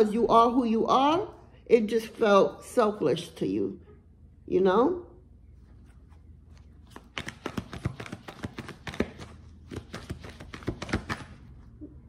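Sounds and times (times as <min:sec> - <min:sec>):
cards being shuffled: 0:06.5 - 0:11.6.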